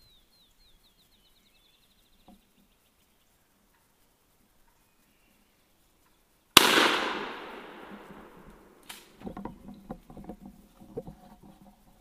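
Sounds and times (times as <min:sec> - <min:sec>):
light crackling and rustling: 0:01.0 - 0:12.0
shotgun shot echoing: 0:06.6 - 0:09.0.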